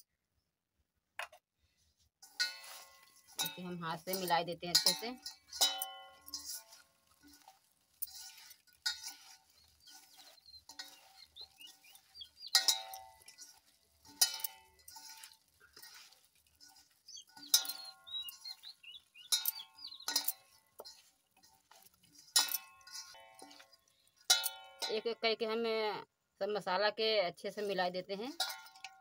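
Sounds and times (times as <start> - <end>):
clinks on metal bowl: 2.2 - 25.5, 28.2 - 29.0
hands squelching pickle: 2.3 - 24.8.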